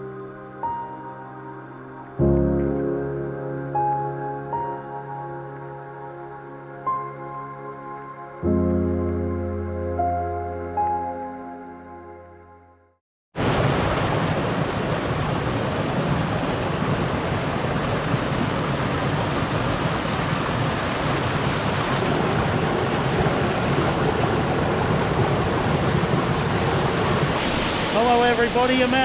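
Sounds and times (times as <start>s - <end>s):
water rushing over rocks: 13.4s - 29.0s.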